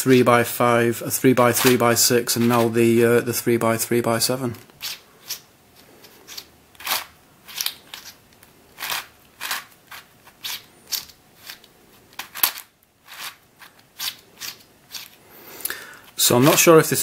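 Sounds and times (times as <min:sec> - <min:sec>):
puzzle layers clicking as turned: 0:06.0 - 0:15.2.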